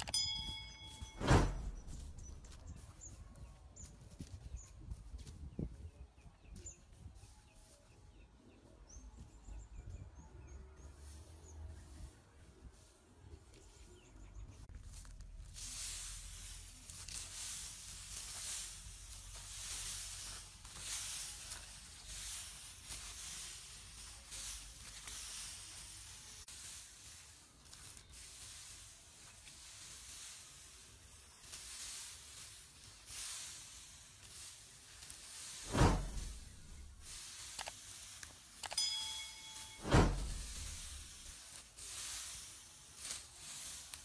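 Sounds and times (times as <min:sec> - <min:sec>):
straw rustling as it is raked: 0:00.1 - 0:08.6, 0:10.6 - 0:44.0
loud bump: 0:39.8 - 0:41.0.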